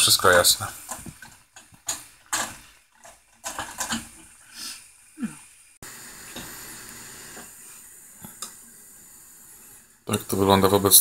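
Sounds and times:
frying pan hissing: 3.6s - 11.0s.

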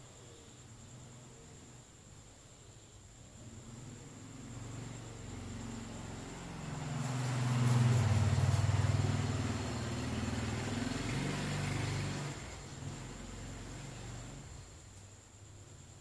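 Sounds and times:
vehicle engine humming: 3.6s - 14.8s.

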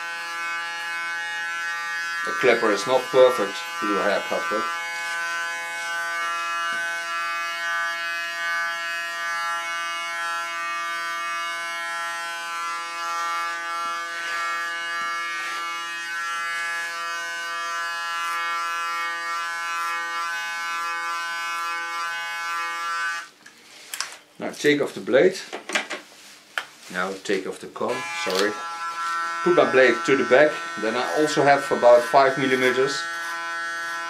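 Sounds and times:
electric hair clipper humming: 0.0s - 23.3s, 27.9s - 34.0s.

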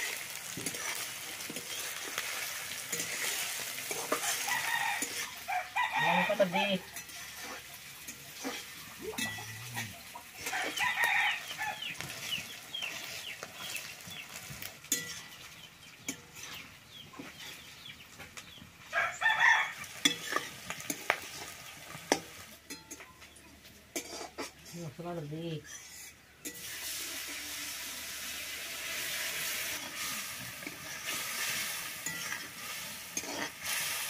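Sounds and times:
spatula scraping in pan: 0.0s - 17.9s, 19.3s - 23.0s, 23.9s - 24.9s, 25.6s - 27.6s, 28.8s - 34.0s
vegetables sizzling in oil: 0.0s - 34.0s.

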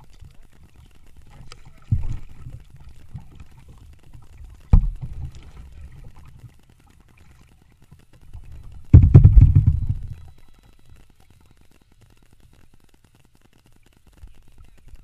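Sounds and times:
low rumble of water on hull: 0.0s - 15.0s
low knock on kayak hull: 9.0s - 10.2s.

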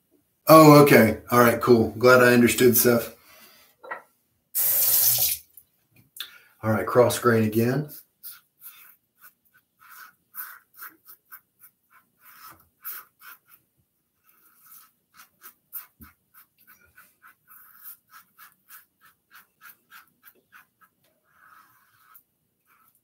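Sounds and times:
razor scraping stubble: 8.2s - 13.6s, 14.2s - 23.0s.

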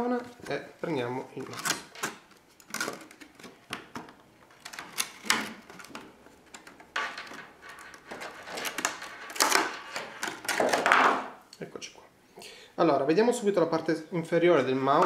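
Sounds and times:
plastic packaging crackling: 4.4s - 10.9s.

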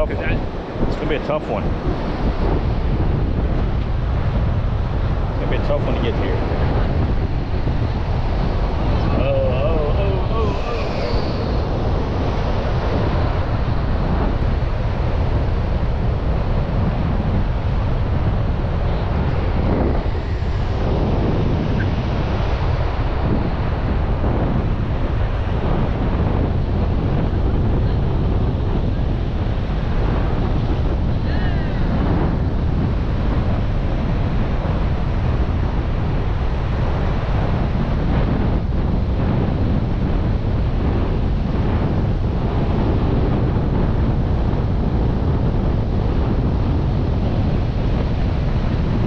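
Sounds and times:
ocean surf washing: 0.0s - 49.0s
wind buffeting microphone: 0.0s - 49.0s.

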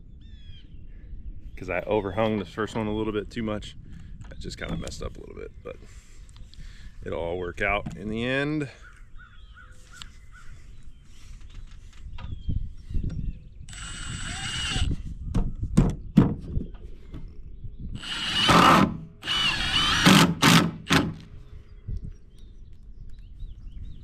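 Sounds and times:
impact driver driving screws: 13.7s - 15.0s, 18.0s - 21.3s.

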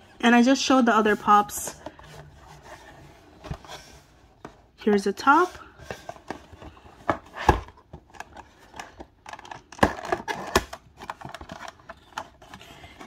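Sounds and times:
cardboard scraping: 0.9s - 4.5s.

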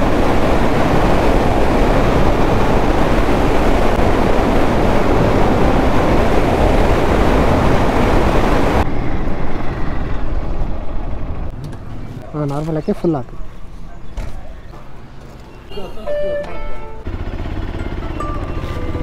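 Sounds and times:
wind rushing over microphone: 0.0s - 11.6s
motorcycle engine: 16.8s - 19.0s.

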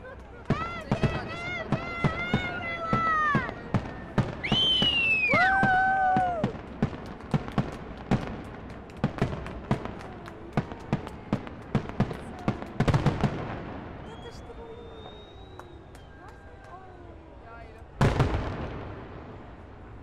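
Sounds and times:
fireworks bangs and crackles: 0.0s - 20.0s
shrill pitched firework wail: 4.3s - 6.6s.

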